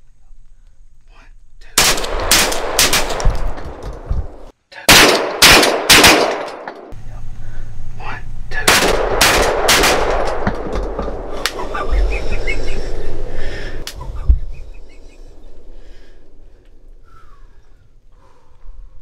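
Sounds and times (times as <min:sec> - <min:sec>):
shotguns firing rapid volley: 0:01.8 - 0:06.7, 0:08.6 - 0:12.1.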